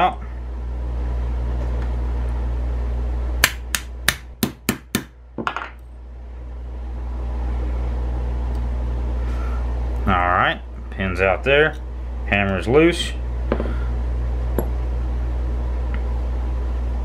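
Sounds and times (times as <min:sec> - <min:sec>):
steady low hum: 0:00.0 - 0:17.0
hammer tapping metal punch: 0:03.4 - 0:05.7.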